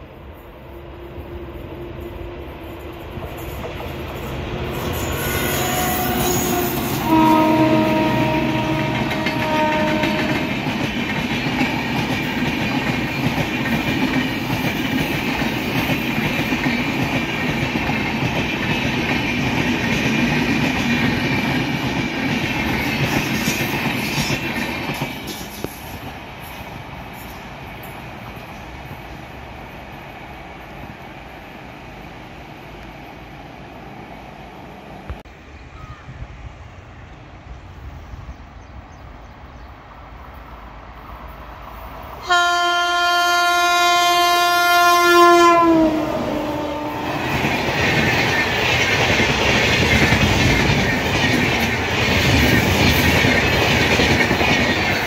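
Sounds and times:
train running on rails: 0.0s - 55.0s
locomotive horn blasts: 4.8s - 10.6s, 42.2s - 47.2s.

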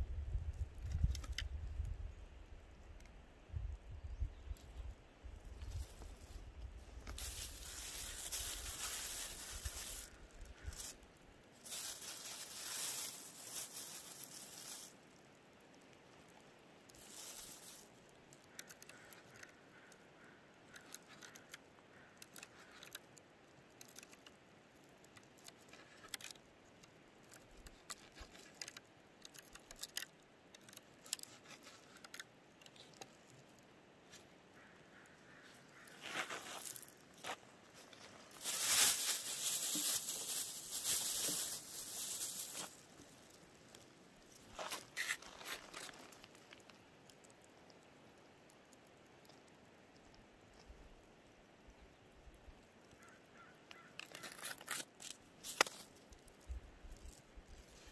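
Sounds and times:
loud rustling hiss: 5.8s - 15.2s, 16.9s - 18.0s, 36.0s - 43.8s.

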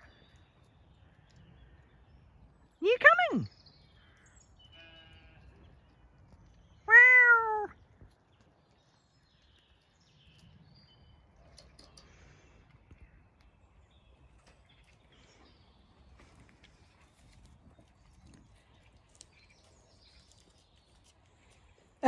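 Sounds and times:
faint outdoor sounds: 0.0s - 22.0s
cat meowing: 6.9s - 7.7s.

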